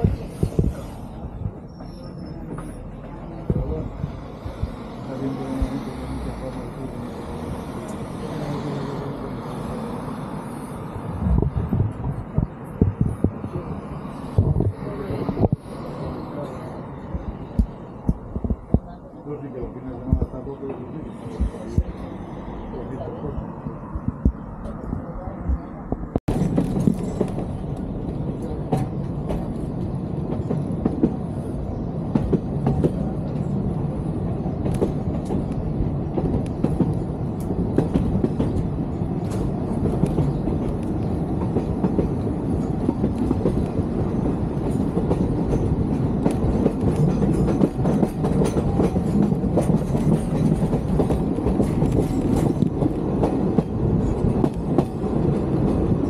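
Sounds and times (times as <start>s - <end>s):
train rumbling: 0.0s - 56.0s.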